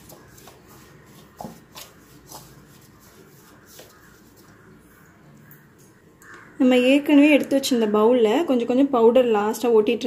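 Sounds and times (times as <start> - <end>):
spoon stirring in steel bowl: 0.0 - 4.7.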